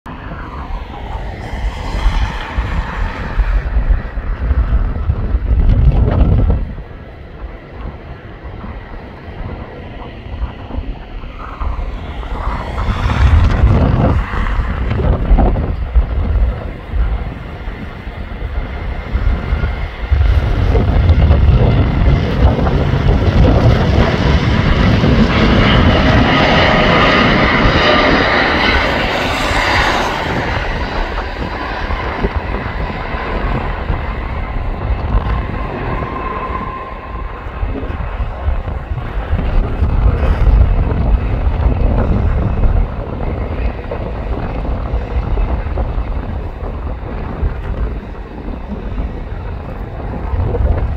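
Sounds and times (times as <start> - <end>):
jet engines roaring: 0.0 - 50.9
whining buzz: 9.8 - 46.4.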